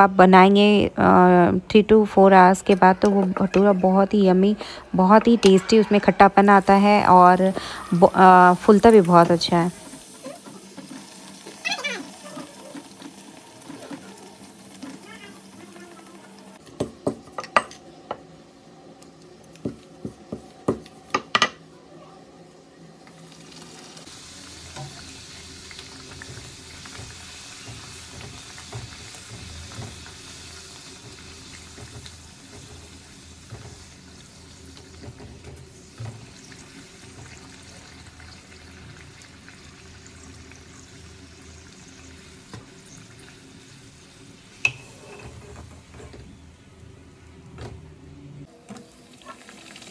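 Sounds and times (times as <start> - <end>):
bread deep-frying in hot oil: 6.5 - 17.7, 23.0 - 46.4, 48.4 - 49.9.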